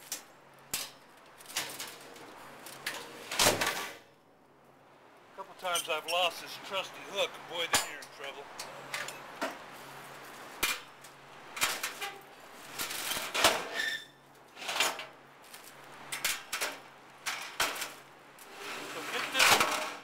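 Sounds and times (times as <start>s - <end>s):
wire racks scraping on metal: 0.8s - 4.0s, 11.6s - 15.1s, 16.1s - 20.0s.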